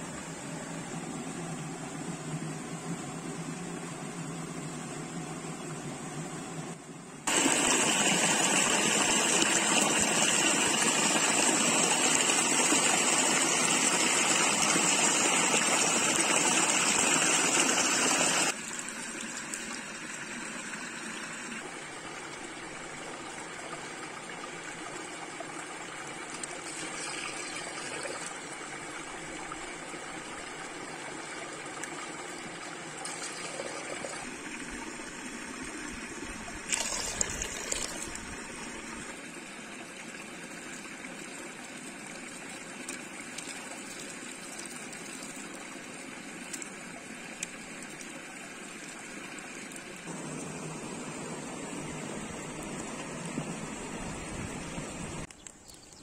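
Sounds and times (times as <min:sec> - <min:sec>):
running water: 0:07.3 - 0:56.0.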